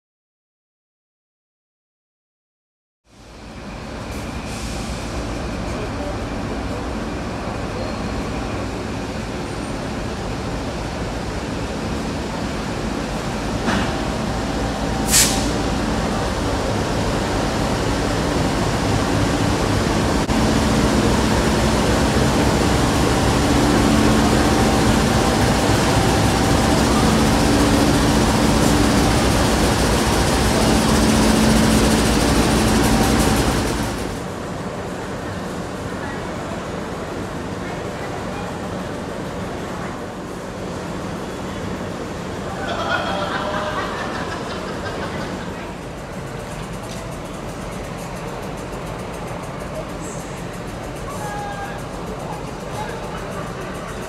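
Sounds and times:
locomotive engine drone: 3.2s - 54.0s
train wheels on rails: 3.2s - 54.0s
sharp hiss: 15.0s - 15.9s.

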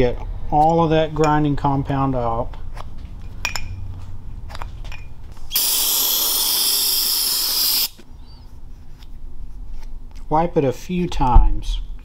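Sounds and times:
aerosol spray hissing: 5.5s - 8.0s.

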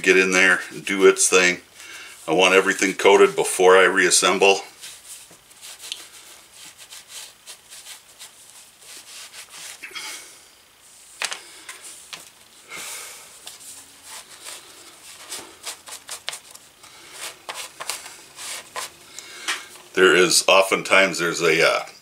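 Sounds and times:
cloth rubbing and scuffing: 2.2s - 10.0s, 13.1s - 19.0s.

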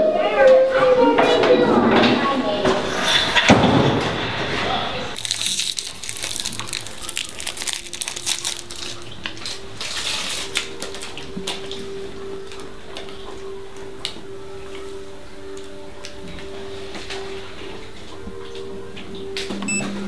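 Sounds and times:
crunching and crackling clicks: 5.2s - 17.4s.

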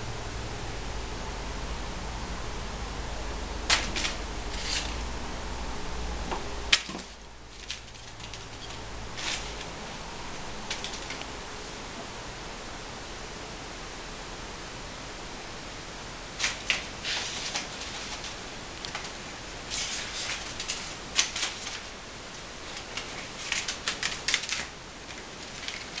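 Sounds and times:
low hiss: 0.0s - 26.0s
cat claws scratching on tiles: 3.7s - 5.1s, 6.8s - 9.9s, 10.6s - 11.4s, 16.4s - 22.0s, 22.6s - 26.0s.

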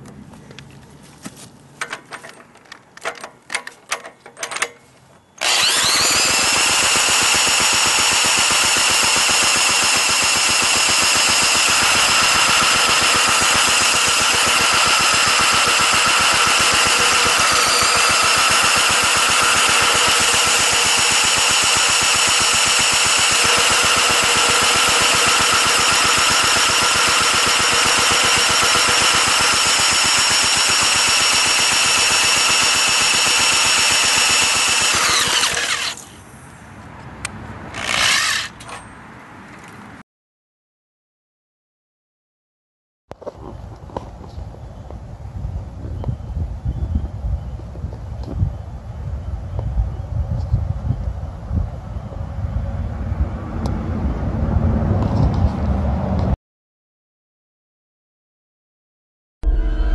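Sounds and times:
handling clicks and taps: 0.0s - 4.8s
engine cranking: 5.4s - 36.0s, 37.7s - 38.7s
power tool whining: 5.4s - 36.1s, 37.7s - 38.6s.

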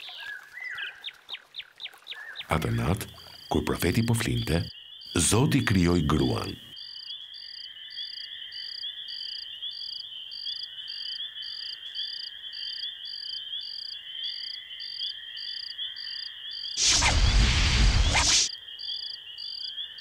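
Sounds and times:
crickets chirping: 2.5s - 20.0s
steady insect trill: 6.7s - 17.0s.

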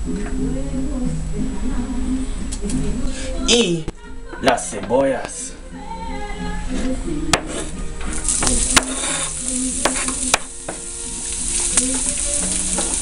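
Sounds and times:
knife scraping cutting board: 7.4s - 7.8s, 8.4s - 10.2s
onions sizzling in hot oil: 8.1s - 13.0s.

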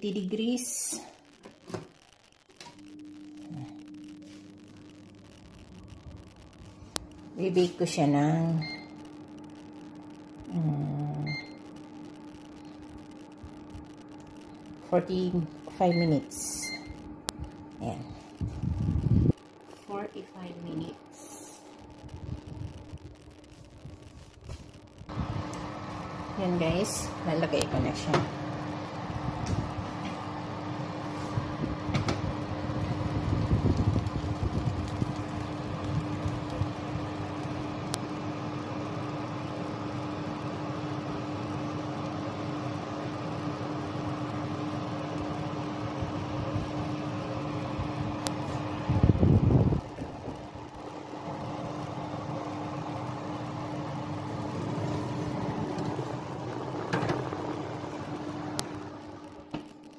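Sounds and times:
oven fan humming: 0.0s - 59.9s
faint steady tone: 0.9s - 18.5s.

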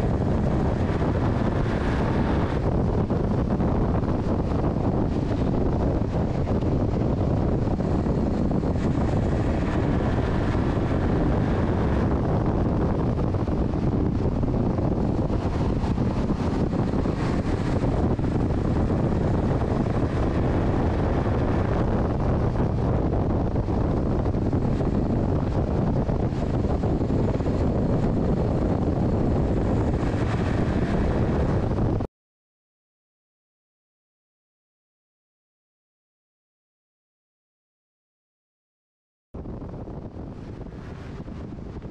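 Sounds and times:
truck engine running at speed: 0.0s - 32.1s
wind buffeting microphone: 0.0s - 32.1s, 39.4s - 41.9s.

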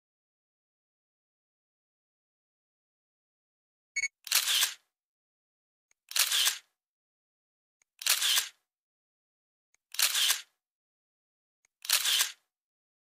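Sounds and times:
camera shutter clicking: 4.2s - 4.8s, 6.1s - 6.7s, 8.0s - 8.6s, 9.9s - 10.5s, 11.8s - 12.4s.

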